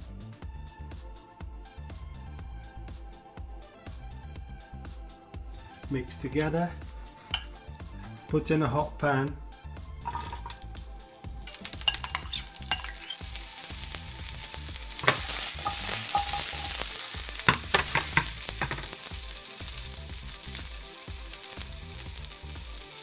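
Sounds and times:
vegetables sizzling in a pan: 10.1 - 23.0
knocks of stirring in pan: 11.4 - 23.0
spoon scraping a bowl: 11.8 - 13.3, 15.0 - 16.8.

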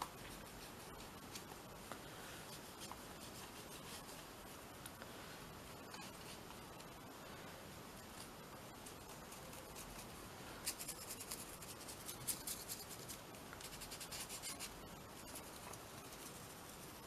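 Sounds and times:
brush scrubbing on paper: 2.4 - 4.4, 8.9 - 17.0.

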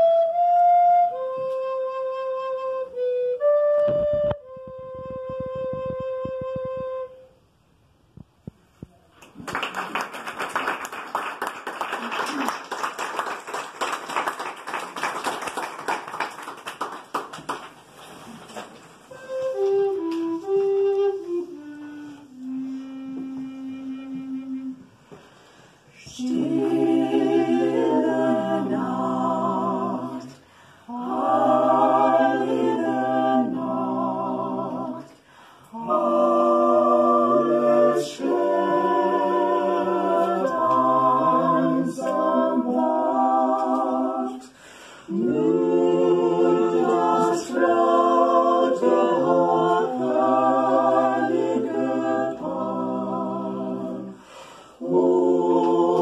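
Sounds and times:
choir singing a cappella: 0.0 - 1.4, 22.2 - 56.0.

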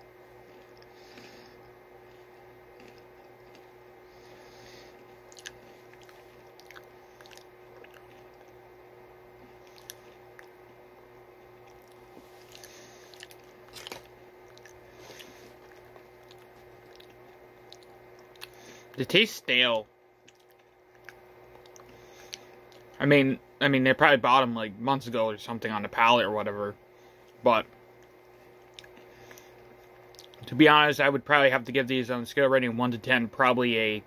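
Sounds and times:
faint steady hum: 0.0 - 34.0
person chewing crunchy bar: 0.4 - 3.8, 4.8 - 8.6, 9.5 - 10.6, 11.6 - 19.0, 20.2 - 23.0, 28.0 - 30.5.

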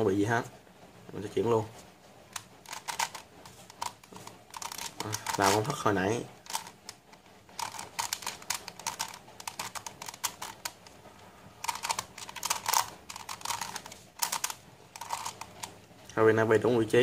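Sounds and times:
plastic puzzle rapid clicks: 2.3 - 11.0, 11.6 - 15.8.

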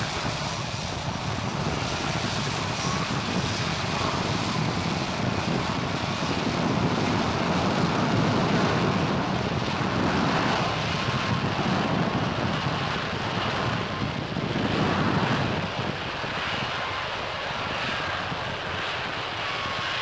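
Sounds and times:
jet aircraft hovering: 0.0 - 20.0.

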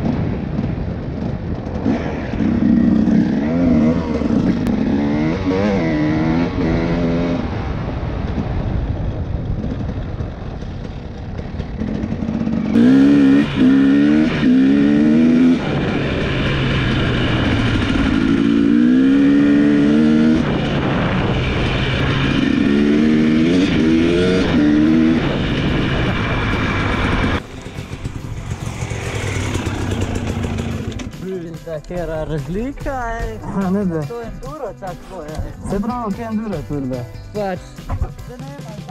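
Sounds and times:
dirt bike engines revving: 1.5 - 7.8, 10.8 - 38.9.

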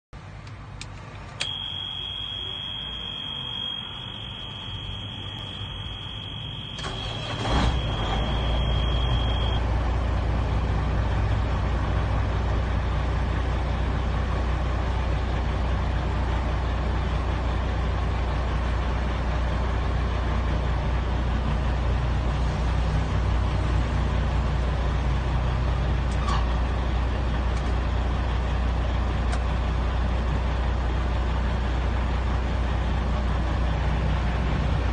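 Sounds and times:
diesel truck engine idling: 0.2 - 34.9
warning buzzer beeping: 1.4 - 9.6.

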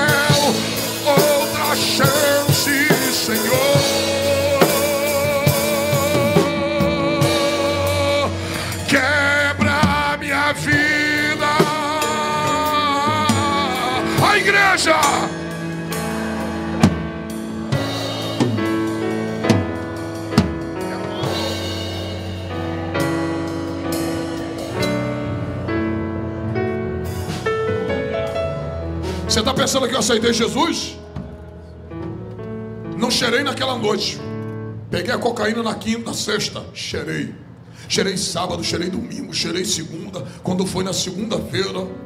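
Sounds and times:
man singing a hymn: 0.0 - 15.5
drum-kit beats: 0.0 - 25.8
live band: 0.0 - 30.4
held chords: 0.0 - 34.9.

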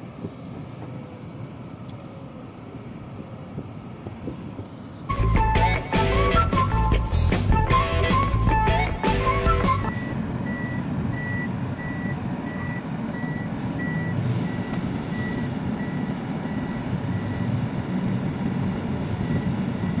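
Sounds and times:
moving vehicle rumble: 0.0 - 20.0
street traffic: 0.0 - 20.0
vehicle warning beeper: 8.2 - 20.0.

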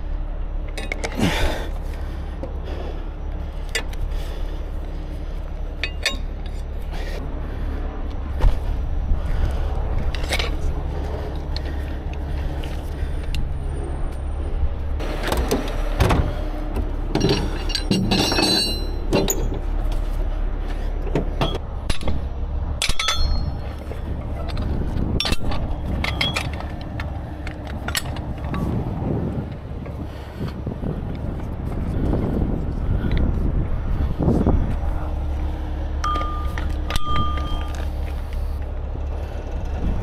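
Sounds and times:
diesel engine idling: 0.0 - 40.0
steel rigging clanking: 0.6 - 1.6, 5.6 - 7.2, 10.0 - 11.7, 15.0 - 20.0, 21.0 - 29.6, 36.0 - 38.6
metal scraping and ringing: 5.8 - 6.9, 17.0 - 19.7, 22.8 - 28.8, 36.0 - 38.6.

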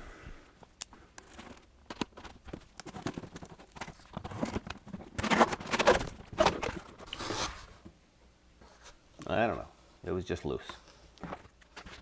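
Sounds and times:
cardboard flaps rustling: 1.3 - 7.9.

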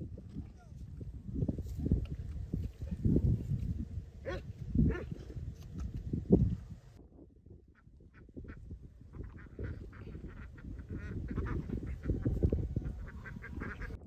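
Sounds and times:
ducks quacking: 7.8 - 14.0.

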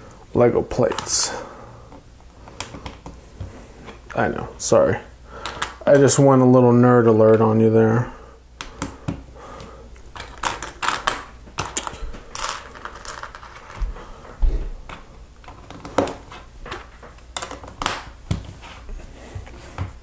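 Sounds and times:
plastic toy bricks clicking and rattling: 10.2 - 13.8.

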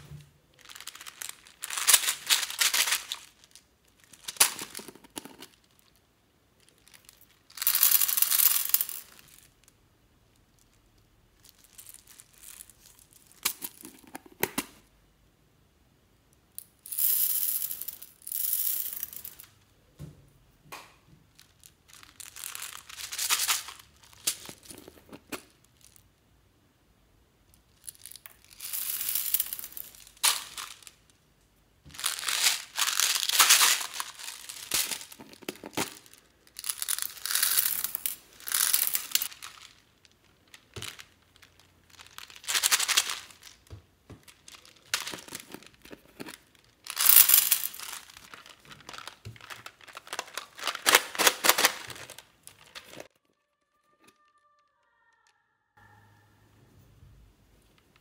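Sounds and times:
beads pouring into glass dish: 6.8 - 9.5, 16.8 - 19.5, 27.8 - 31.0, 32.0 - 43.6, 44.4 - 51.7.

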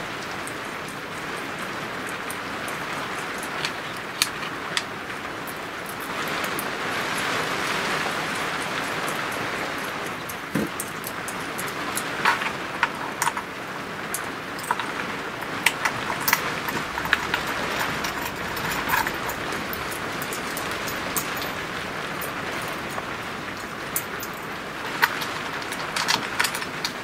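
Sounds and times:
metal parts clicking and tapping: 0.4 - 6.6, 10.1 - 27.0.

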